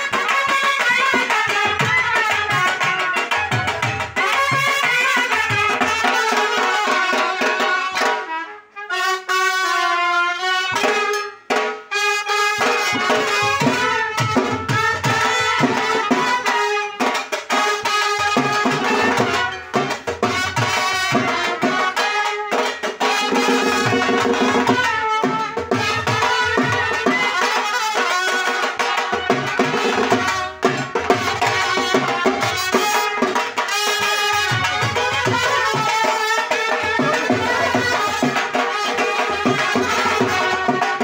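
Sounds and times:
drums beating: 0.0s - 8.3s, 10.7s - 41.0s
brass horns playing melody: 0.0s - 41.0s.

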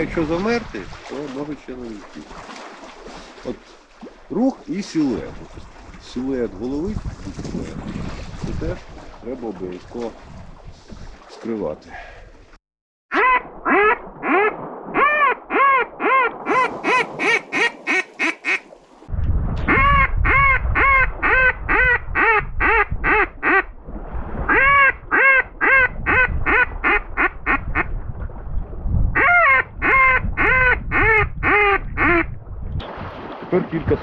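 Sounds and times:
low wind rumble on microphone: 5.1s - 11.2s, 19.1s - 32.8s
duck call quacks: 13.1s - 18.6s, 19.7s - 23.7s, 24.5s - 27.9s, 29.2s - 32.3s.

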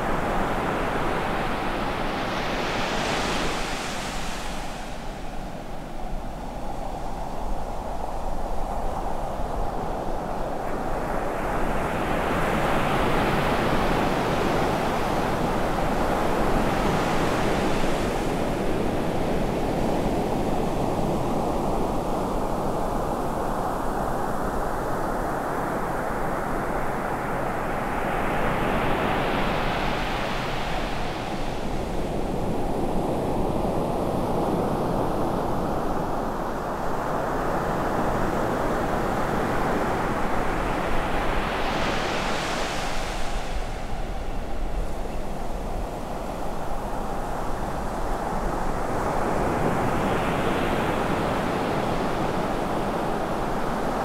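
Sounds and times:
ocean waves breaking on beach: 24.2s - 54.0s.

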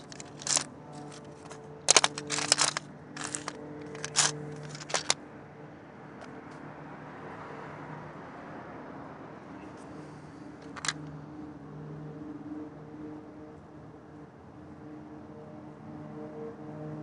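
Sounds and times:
stones clinking together: 0.0s - 5.2s, 10.6s - 11.0s.

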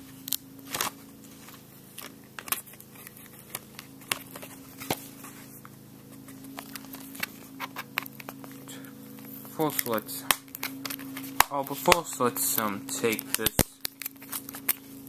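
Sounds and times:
plastic case clicks and crinkles: 1.9s - 5.1s, 6.2s - 8.6s, 9.2s - 14.9s.

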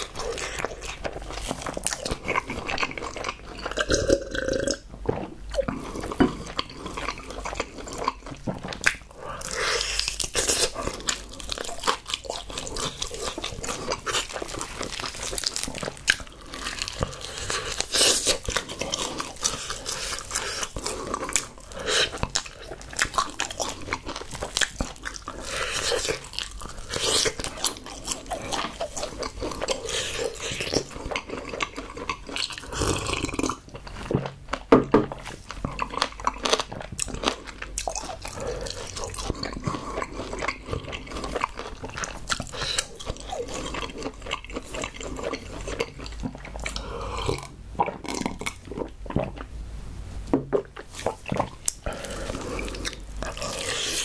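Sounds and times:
person chewing wetly: 0.0s - 49.6s, 50.5s - 54.0s.

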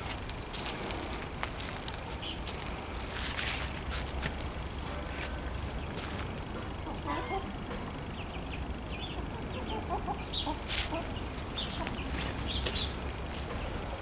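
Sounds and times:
chickens clucking: 4.1s - 14.0s.

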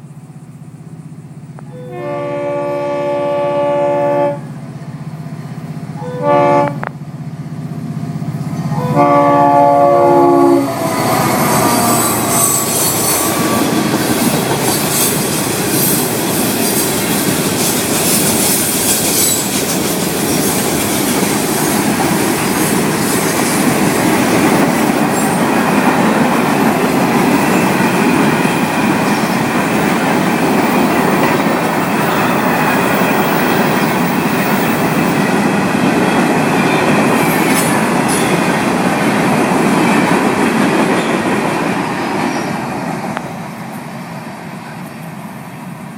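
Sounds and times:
locomotive horn chord: 1.6s - 4.6s, 6.0s - 6.9s, 8.6s - 14.0s
high-pitched wheel squeal: 10.4s - 16.8s, 18.4s - 19.7s
train wheels clattering on rails: 10.7s - 43.9s.

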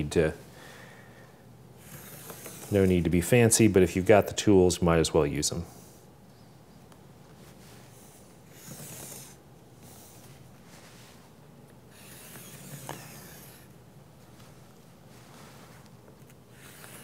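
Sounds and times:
marker drawing on fabric: 1.8s - 2.9s, 8.4s - 10.1s, 11.9s - 13.7s, 16.4s - 17.0s.

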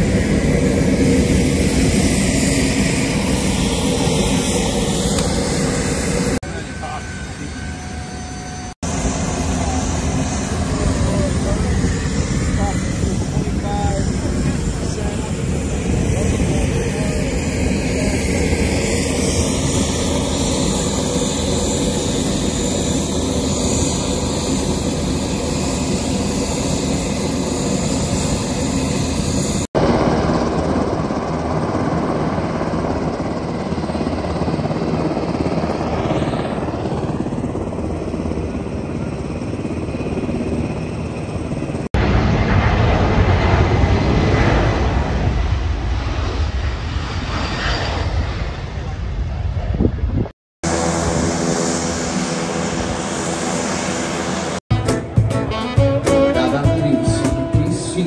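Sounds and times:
aircraft engine noise: 0.0s - 58.0s
jet transport taking off: 0.0s - 58.0s.

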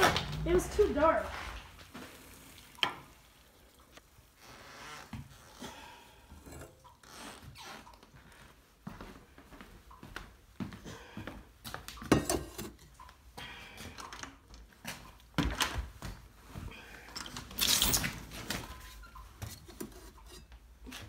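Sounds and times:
knocks and clinks of metal pot: 12.0s - 12.9s.

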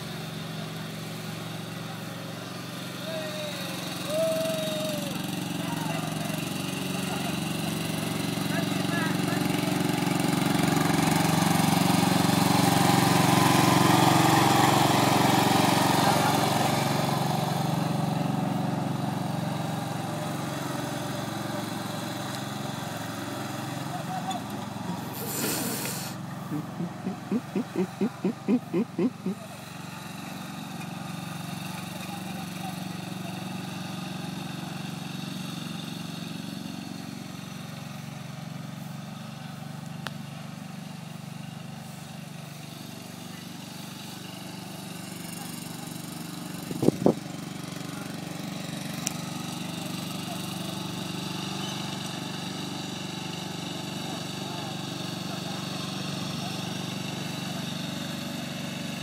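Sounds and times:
ride-on lawn mower engine running: 0.0s - 59.0s
short pulses: 25.1s - 29.4s.

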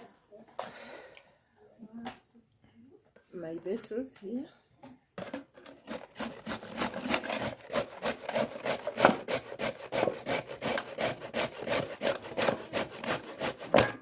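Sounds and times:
grater rasping strokes: 5.8s - 13.8s.

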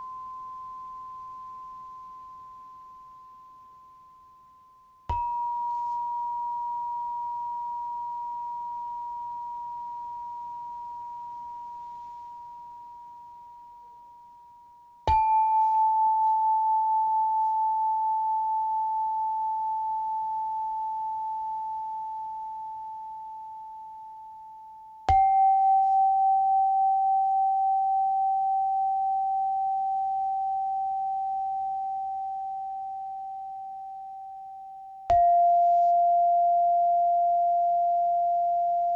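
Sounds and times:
bell-like tones: 5.2s - 14.2s, 25.1s - 38.9s.

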